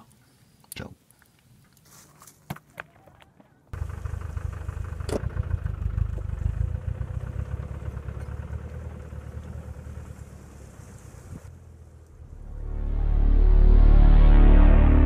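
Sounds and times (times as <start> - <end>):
vehicle engine pulling away: 3.8 - 15.0.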